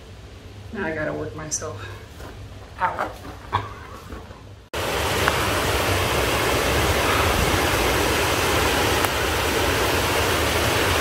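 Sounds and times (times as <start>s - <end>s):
stream water rushing: 4.8s - 11.0s.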